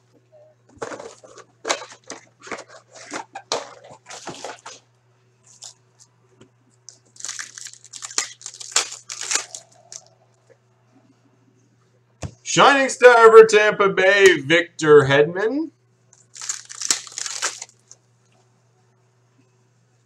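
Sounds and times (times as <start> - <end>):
foil wrapper crinkling and tearing: 6.9 - 10.1, 16.2 - 18.0.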